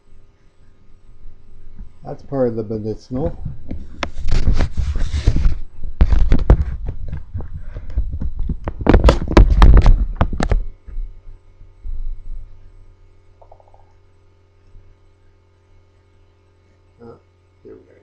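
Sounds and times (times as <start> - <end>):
faint steady hum: 0.0 - 18.0
camera handling bumps and rubbing: 3.6 - 10.7.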